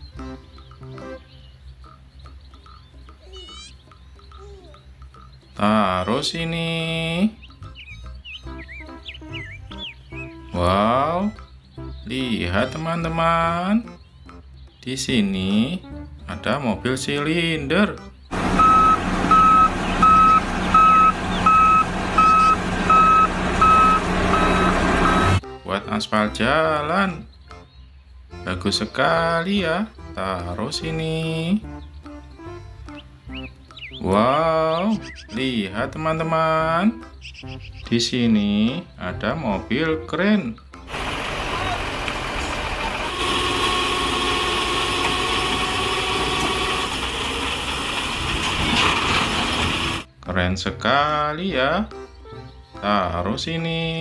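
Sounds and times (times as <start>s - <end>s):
diesel engine running: 18.3s - 25.4s, 40.9s - 50.1s
reversing alarm beeping: 18.3s - 25.4s
thin steady whine: 43.1s - 47.0s.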